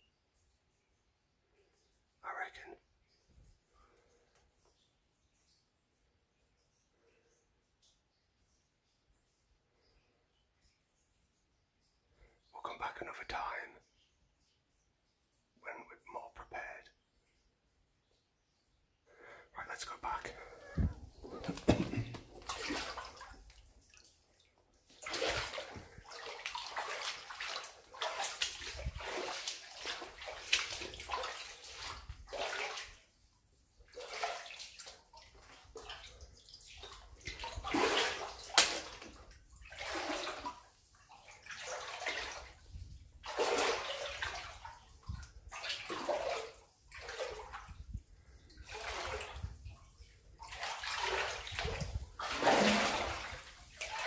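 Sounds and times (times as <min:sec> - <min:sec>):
footsteps sloshing through water: 0:20.3 - 0:33.2, 0:33.8 - 0:54.0.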